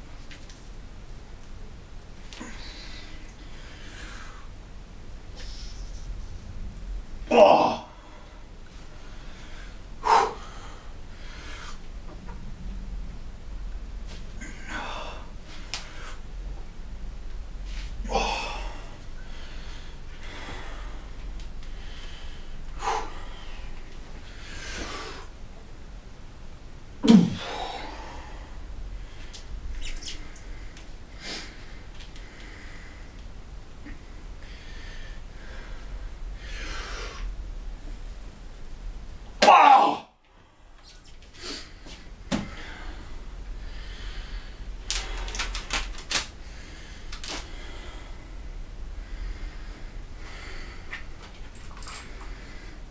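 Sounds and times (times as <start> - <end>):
man breathing hard: 2.4 - 4.6, 7.8 - 11.9, 14.4 - 16.3, 17.7 - 25.4, 27.2 - 29.4, 33.8 - 37.3, 40.3 - 45.8, 46.4 - 52.9
man grunting with effort: 7.3 - 7.9, 18.0 - 18.8, 27.0 - 27.8, 39.4 - 40.1
wrench clicks and rustles: 44.9 - 46.3.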